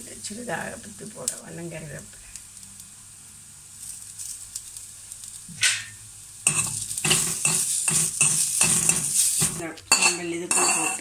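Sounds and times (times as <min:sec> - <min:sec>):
spices sizzling in oil: 0:00.0 - 0:11.0
spatula scraping metal pan: 0:06.5 - 0:11.0.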